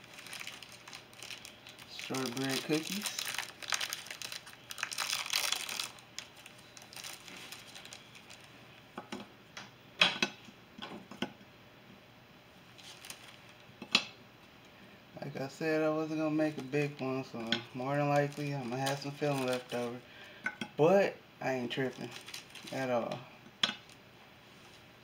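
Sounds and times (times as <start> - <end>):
cookie packet crinkling: 0.0 - 8.5, 12.8 - 13.6, 16.0 - 20.1, 21.7 - 23.0.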